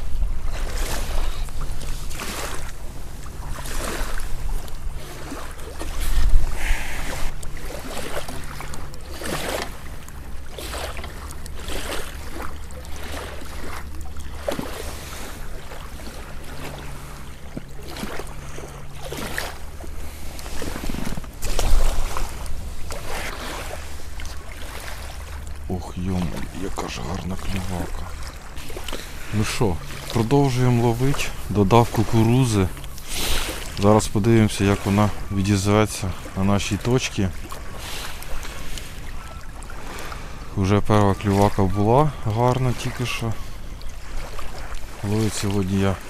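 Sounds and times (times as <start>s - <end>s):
wind rumbling on microphone: 0.0s - 12.8s, 19.5s - 31.7s
water lapping: 0.0s - 46.0s.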